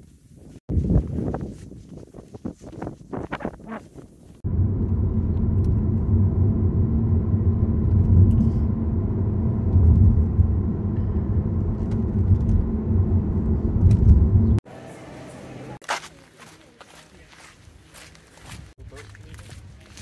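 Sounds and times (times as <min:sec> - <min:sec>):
car road and engine rumble: 0:04.4 - 0:15.8.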